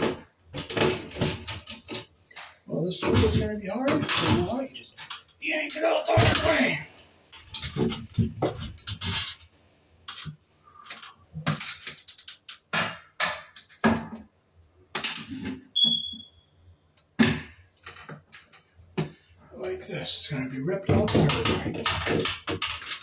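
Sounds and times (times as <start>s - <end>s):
high squeak: 15.8s - 16.4s.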